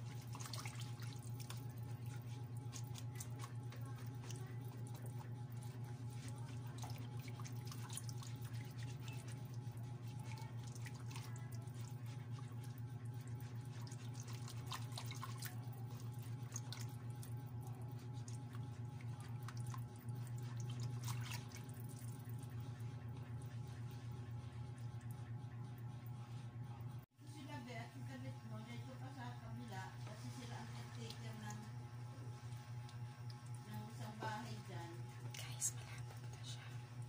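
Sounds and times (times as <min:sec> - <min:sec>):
whisk sloshing batter: 0:00.0 - 0:26.6, 0:29.1 - 0:37.0.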